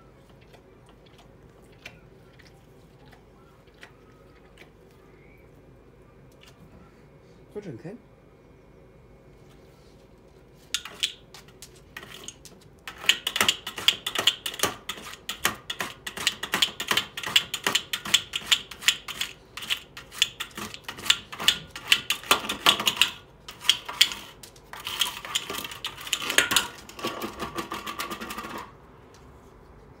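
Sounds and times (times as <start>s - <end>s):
dog licking ice in metal bowl: 0.1s - 5.0s, 10.8s - 27.1s.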